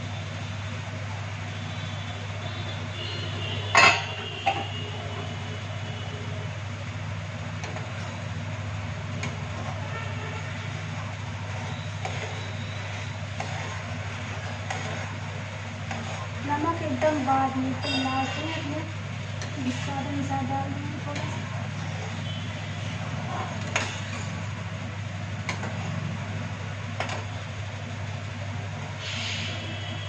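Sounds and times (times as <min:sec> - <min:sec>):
low kitchen hum: 0:00.0 - 0:30.0
utensil clanking against pot: 0:23.3 - 0:24.4.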